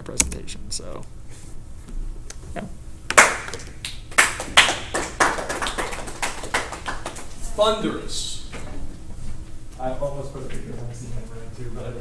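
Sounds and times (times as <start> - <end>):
small group applauding: 3.1 - 7.5.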